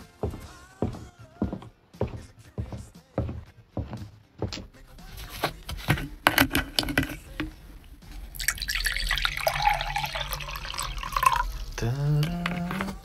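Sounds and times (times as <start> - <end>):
water running: 8.2 - 13.0.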